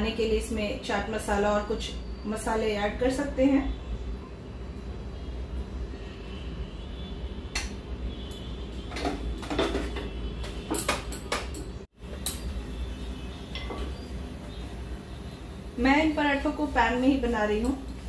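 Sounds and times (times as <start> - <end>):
steel kitchenware clinking: 13.5 - 14.0.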